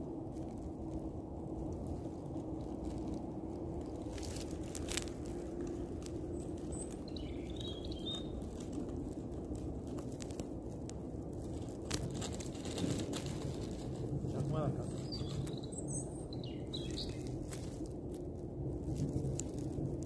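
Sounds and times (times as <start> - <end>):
low background rumble: 0.0 - 20.0
bird chirp: 6.3 - 8.5, 14.3 - 17.4.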